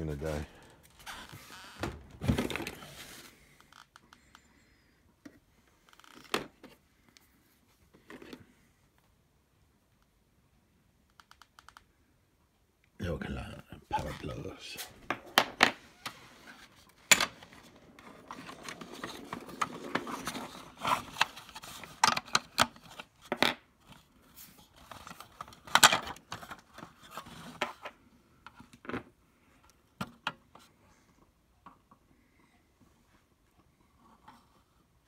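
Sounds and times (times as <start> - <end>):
plastic rubbing and scraping: 14.0 - 28.0.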